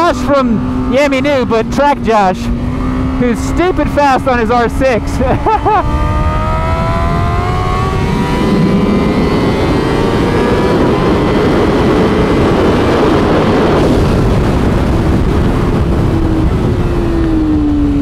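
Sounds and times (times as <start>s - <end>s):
wind rushing: 0.0s - 17.8s
motorcycle engine pulling hard: 0.0s - 18.0s.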